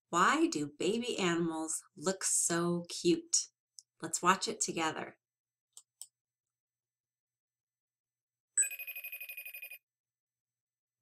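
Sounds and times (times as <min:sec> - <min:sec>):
trilling electronic ringtone: 0:08.6 - 0:09.8.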